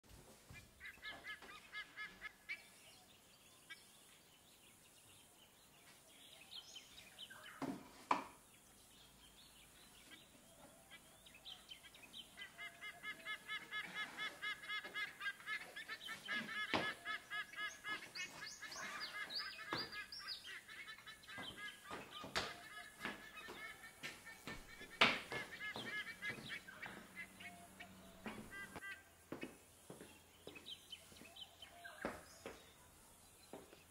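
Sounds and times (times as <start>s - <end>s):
fowl calling: 0.6s - 2.8s, 10.0s - 29.6s.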